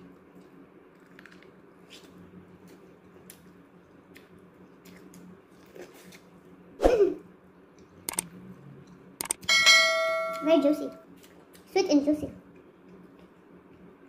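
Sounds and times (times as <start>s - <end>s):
person chewing corn: 0.3s - 6.3s.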